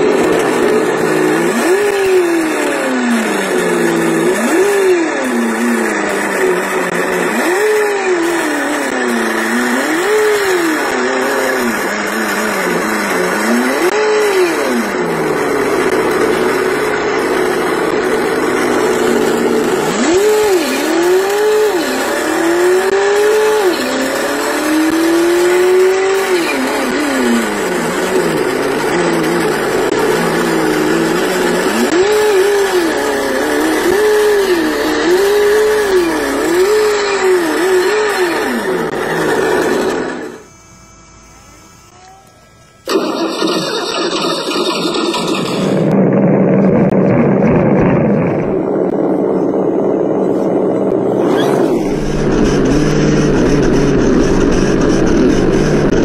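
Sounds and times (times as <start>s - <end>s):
engine revving: 0.0s - 42.0s, 42.6s - 56.0s
steady high whine: 14.7s - 23.0s, 23.6s - 43.4s, 45.8s - 56.0s.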